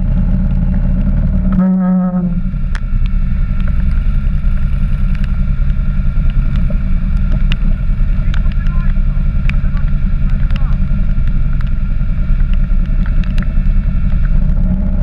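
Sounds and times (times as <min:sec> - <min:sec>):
quad bike engine rumbling: 0:00.0 - 0:15.0
short steady held tone: 0:01.5 - 0:02.7
sharp ticks: 0:02.6 - 0:14.4.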